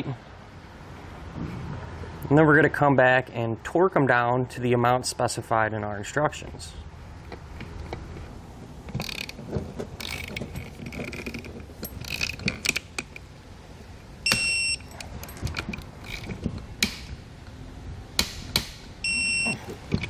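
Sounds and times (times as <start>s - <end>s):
torque wrench ratcheting: 8.9s - 9.4s, 10.0s - 12.9s
short high electronic beep: 19.1s - 19.6s.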